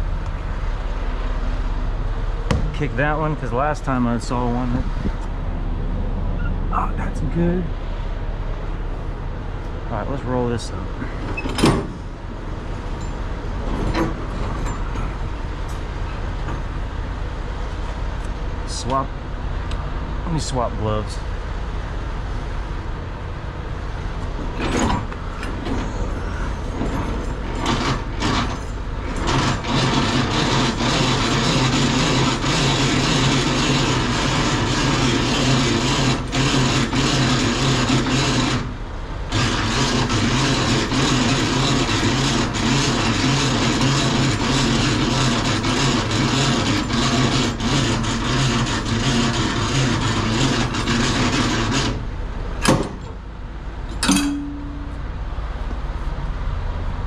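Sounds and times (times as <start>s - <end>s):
diesel truck engine idling: 0.0s - 53.9s
knocks: 2.5s - 2.8s.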